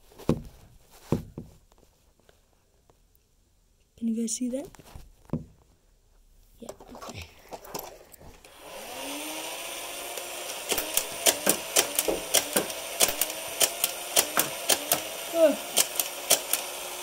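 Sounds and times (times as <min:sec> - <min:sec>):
toy blaster motor whine: 0:08.5 - 0:17.0
toy blaster firing darts: 0:10.1 - 0:17.0.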